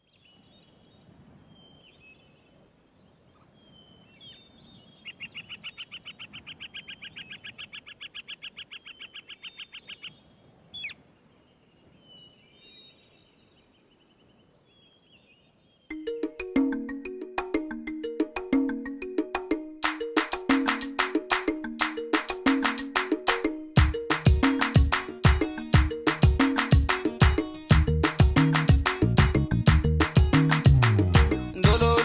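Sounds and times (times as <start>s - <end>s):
birds chirping: 0.0s - 17.1s
bird rapid trill: 4.2s - 11.0s.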